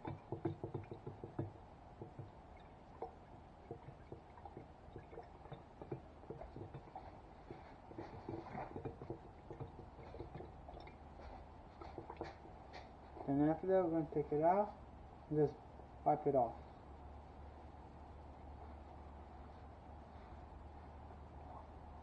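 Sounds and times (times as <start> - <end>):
brush ticking on glass: 0.0 - 11.0, 11.8 - 13.4
water swishing in a jar: 0.0 - 14.4.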